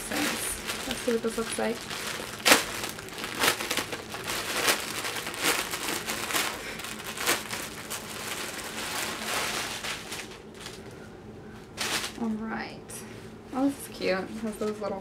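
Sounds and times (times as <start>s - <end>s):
plastic bag crinkling and rustling: 0.0s - 11.0s, 11.6s - 12.4s.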